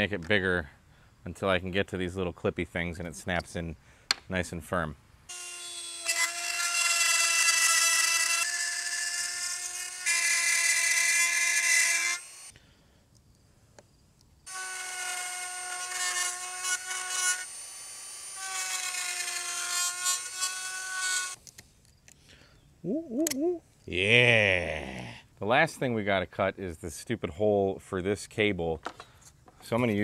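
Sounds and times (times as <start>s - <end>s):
rotary tool whining: 5.3s - 12.5s, 14.5s - 21.4s.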